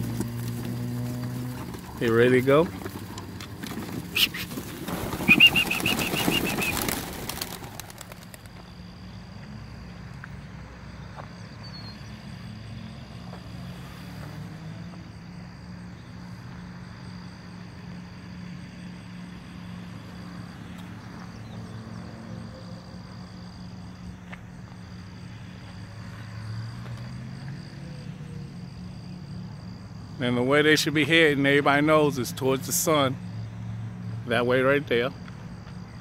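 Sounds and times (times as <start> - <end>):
pigeons' wings flapping: 2.7 - 8.7.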